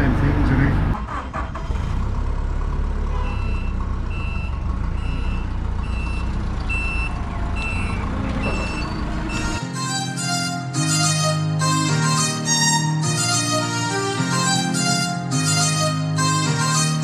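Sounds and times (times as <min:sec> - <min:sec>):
forklift engine running: 0:00.0 - 0:12.6
reversing alarm beeps: 0:03.2 - 0:09.7.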